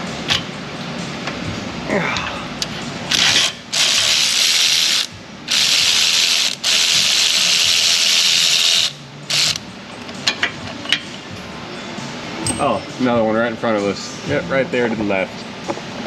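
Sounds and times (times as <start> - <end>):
ratchet clicking: 3.1 - 9.6.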